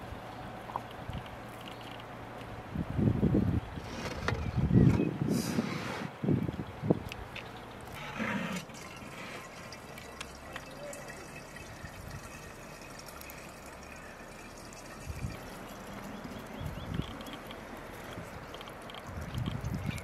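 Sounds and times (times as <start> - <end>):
outdoor background hiss: 0.0 - 20.0
wet fish cleaning sounds: 7.4 - 20.0
light drips: 8.6 - 20.0.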